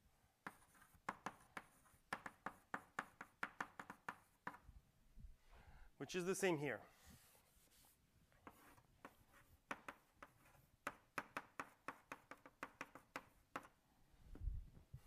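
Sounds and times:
chalk tapping on a blackboard: 0:00.4 - 0:04.7, 0:07.2 - 0:13.8.

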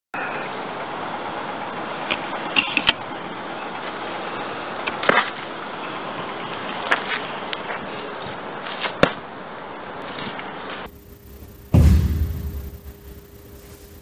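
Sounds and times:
steady background rush: 0:10.8 - 0:14.0
sharp snaps and thuds of strikes: 0:11.7 - 0:13.2.

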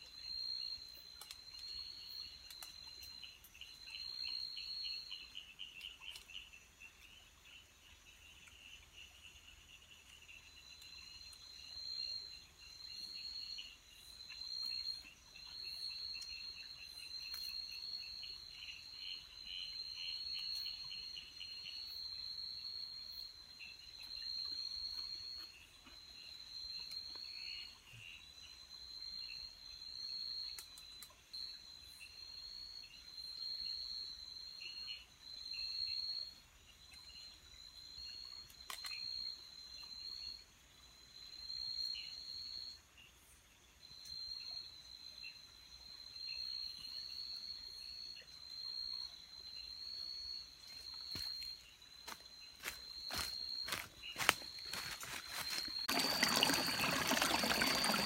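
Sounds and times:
low pulsing insect trill: 0:00.0 - 0:58.0
high insect trill: 0:46.1 - 0:58.0.

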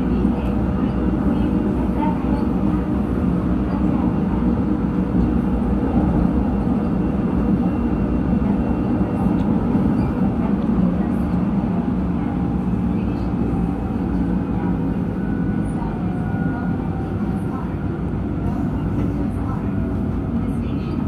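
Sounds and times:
subway train running: 0:00.0 - 0:21.0.

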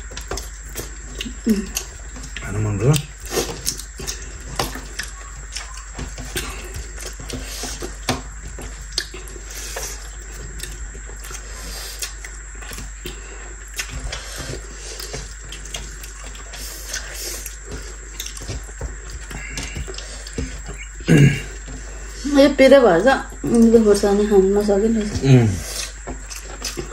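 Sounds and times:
chewing: 0:00.0 - 0:22.2, 0:24.6 - 0:26.9.

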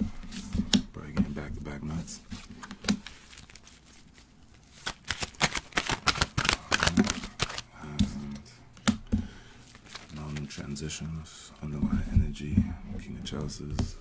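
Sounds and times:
cards being shuffled: 0:02.2 - 0:08.2, 0:09.6 - 0:11.8.

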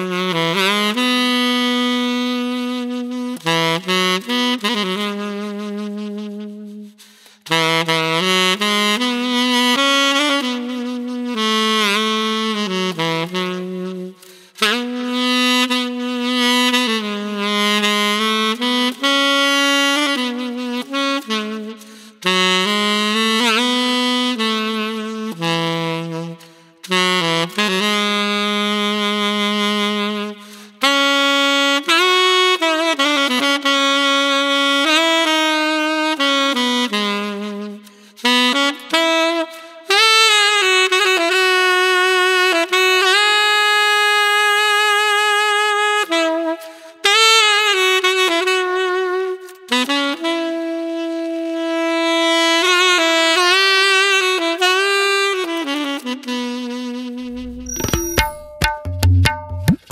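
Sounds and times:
tenor saxophone solo: 0:00.0 - 0:58.4.

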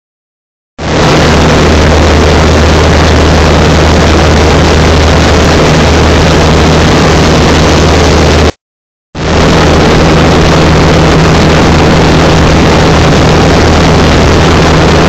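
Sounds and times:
constant low hum: 0:09.2 - 0:15.0.

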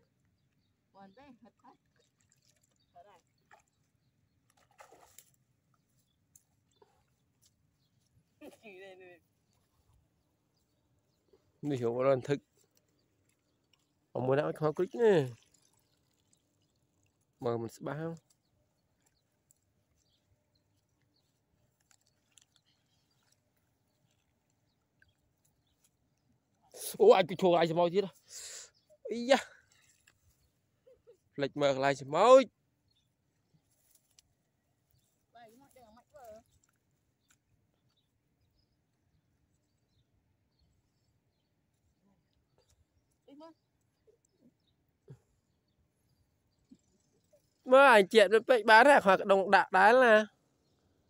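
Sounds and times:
person wading in water: 0:00.1 - 0:08.5, 0:09.2 - 0:27.0, 0:28.2 - 0:31.4.

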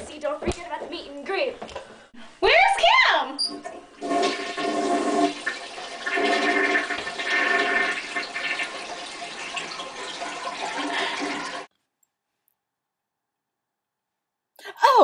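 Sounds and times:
toilet flushing: 0:03.4 - 0:11.7.

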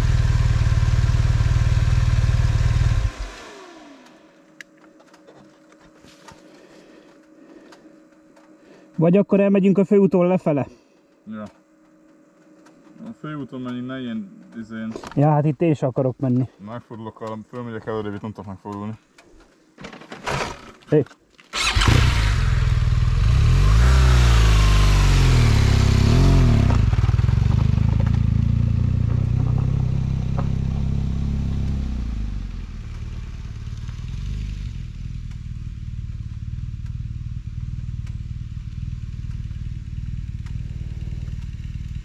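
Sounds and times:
vehicle engine revving: 0:00.0 - 0:04.4, 0:21.6 - 0:42.0.

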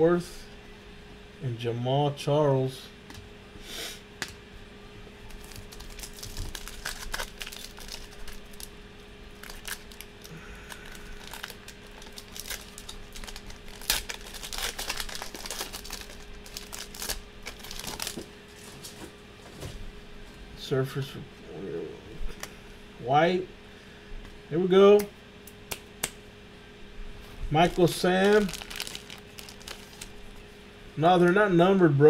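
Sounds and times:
foil wrapper tearing and crinkling: 0:05.3 - 0:08.7, 0:09.3 - 0:18.3, 0:27.6 - 0:30.2.

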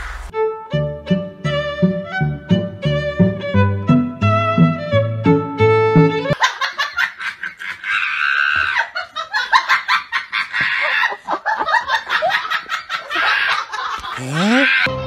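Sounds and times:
person laughing hard: 0:06.5 - 0:14.9.

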